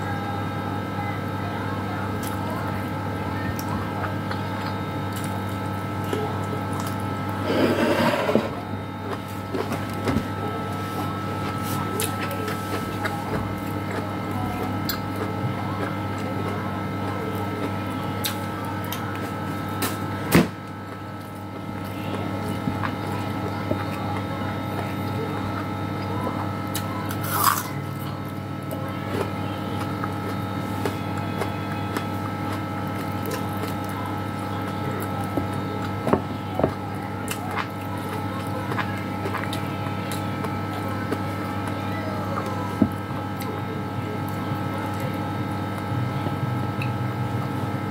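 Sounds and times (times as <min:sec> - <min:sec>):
steady low hum: 0:00.0 - 0:47.9
chewing: 0:11.0 - 0:19.4, 0:21.8 - 0:43.6.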